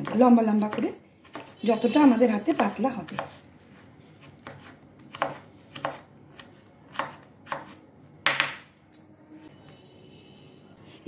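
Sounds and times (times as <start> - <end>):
knife slicing on wooden board: 4.2 - 7.8.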